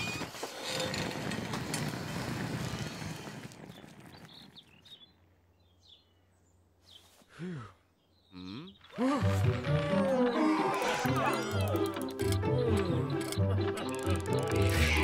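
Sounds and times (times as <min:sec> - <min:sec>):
faint bird chirps: 0:08.0 - 0:09.0.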